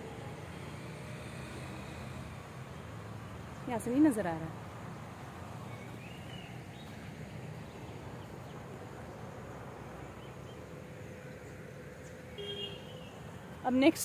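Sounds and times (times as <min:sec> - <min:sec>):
bird chirp: 0:05.6 - 0:13.4.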